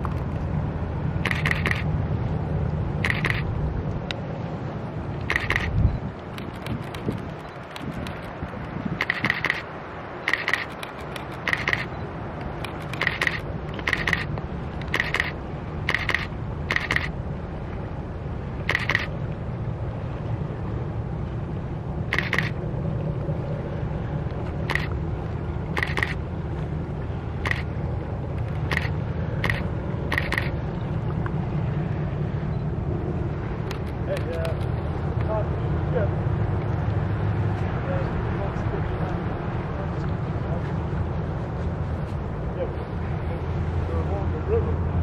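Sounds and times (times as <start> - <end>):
locomotive engine hum: 0.0 - 45.0
camera shutter clicking: 1.2 - 1.9, 3.0 - 3.5, 5.3 - 8.3, 9.0 - 9.6, 10.3 - 11.9, 12.6 - 17.1, 18.7 - 19.1, 22.1 - 22.6, 24.7 - 24.9, 25.8 - 26.2, 27.4 - 27.7, 28.5 - 30.5.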